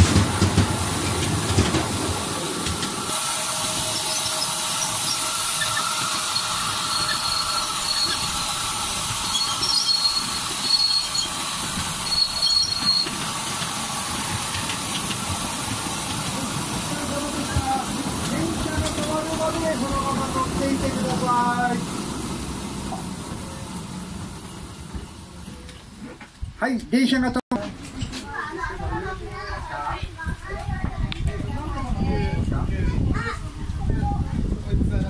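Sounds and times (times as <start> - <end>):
train wheels rumbling: 0.0 - 26.6
steady high hiss: 2.3 - 25.4
high-pitched wheel squeal: 3.7 - 8.4, 9.2 - 13.2.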